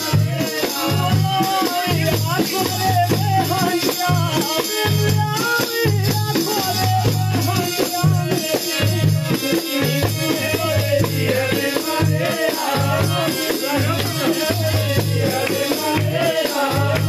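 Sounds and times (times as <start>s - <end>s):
rattling percussion: 0.0s - 17.0s
frame drum beating: 5.2s - 17.0s.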